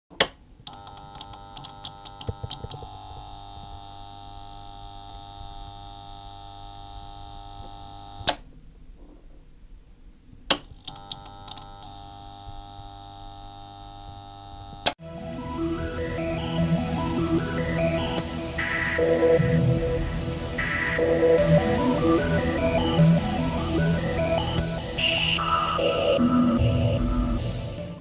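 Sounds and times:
electronic drone: 14.6 - 28.0
low hum: 15.0 - 28.0.

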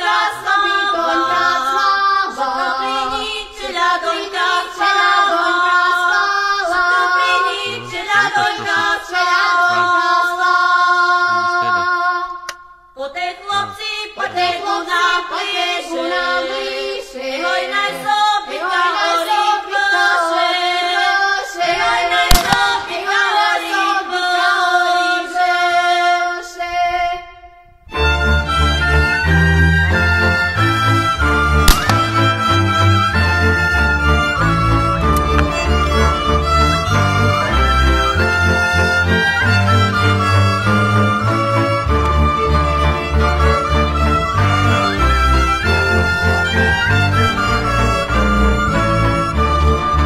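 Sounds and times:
women singing folk song: 0.0 - 27.6
sharp crack: 22.3 - 23.0, 31.6 - 32.6.

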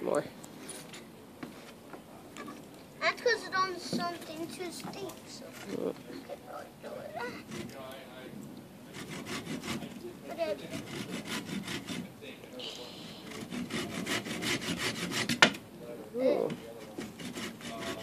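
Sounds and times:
hand saw cutting branch: 7.2 - 7.8, 8.9 - 12.1, 13.3 - 15.6, 16.6 - 18.0.

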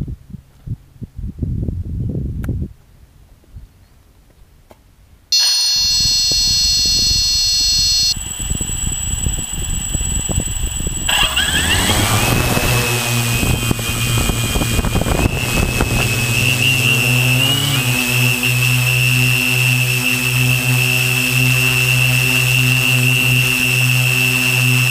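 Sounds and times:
drone motors whining: 5.4 - 24.9
low propeller hum: 5.4 - 24.9.

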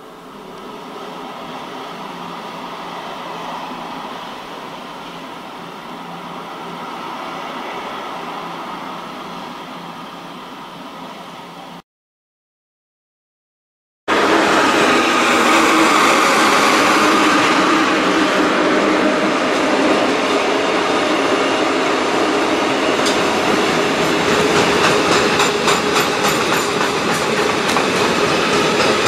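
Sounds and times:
train wheels rushing on rail: 14.1 - 29.0.

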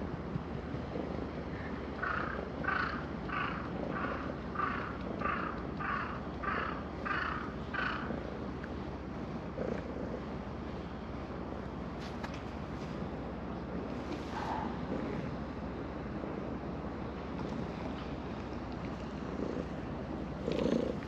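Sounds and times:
cat purring: 9.5 - 10.3, 19.0 - 21.0.

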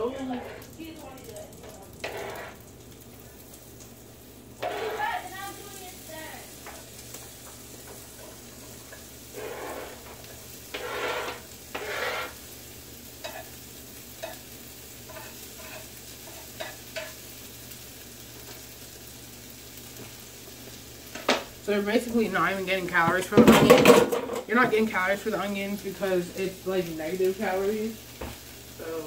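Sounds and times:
onions sizzling in frying pan: 0.0 - 29.0
scraping on cutting board: 2.0 - 2.6, 4.6 - 5.1, 9.3 - 12.4.

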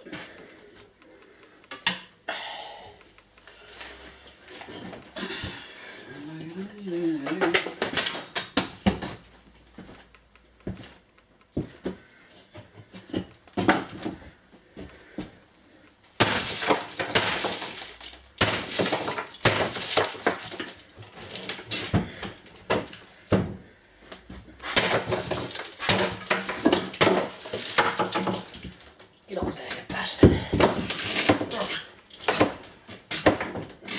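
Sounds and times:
objects clattering and knocking: 7.2 - 9.2, 16.2 - 23.6, 24.3 - 33.9.

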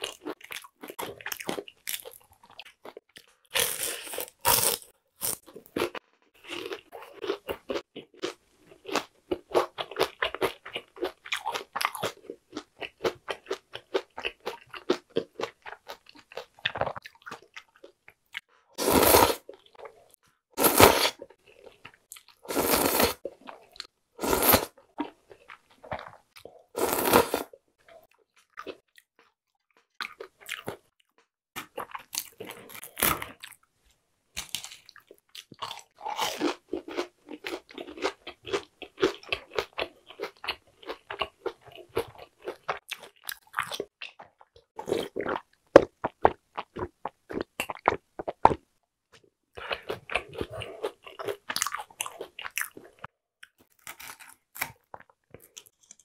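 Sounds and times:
noodles slurped: 22.4 - 23.2.

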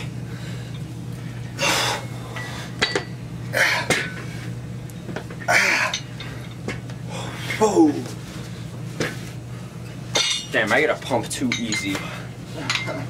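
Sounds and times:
steady low hum: 0.0 - 13.0
person breathing forcefully: 1.6 - 2.8.

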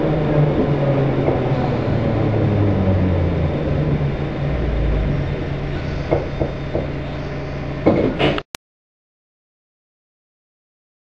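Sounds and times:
train hum and rumble: 0.0 - 8.4
train knocks: 0.5 - 8.4.

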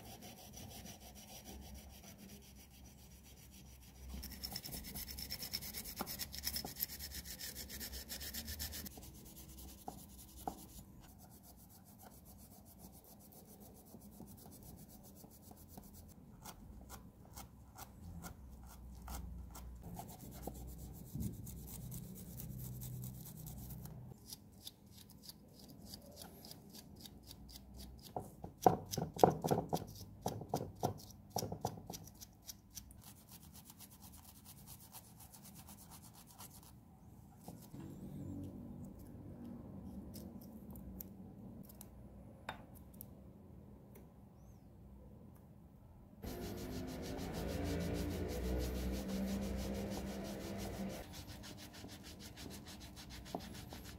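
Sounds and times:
scouring pad rubbing metal: 46.2 - 53.9.

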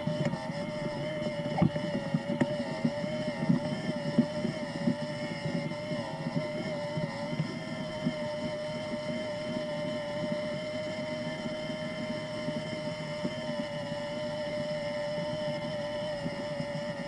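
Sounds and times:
low vibration rattle: 0.0 - 14.2.

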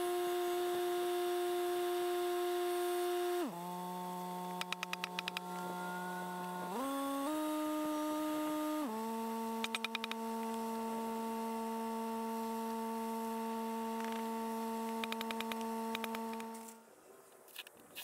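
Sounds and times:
steady humming tone: 0.0 - 17.8
rapid clicks: 4.5 - 5.5, 9.6 - 10.6, 14.8 - 16.6.

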